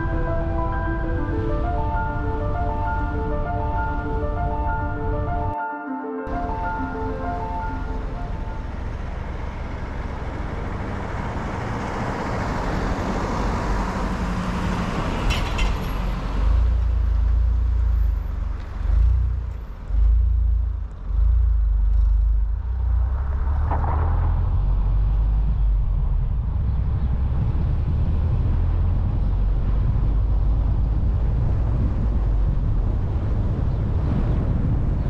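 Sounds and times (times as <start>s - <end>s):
car road and engine noise: 0.0s - 5.6s, 6.3s - 35.0s
heavy low rumbling surges: 19.9s - 35.0s.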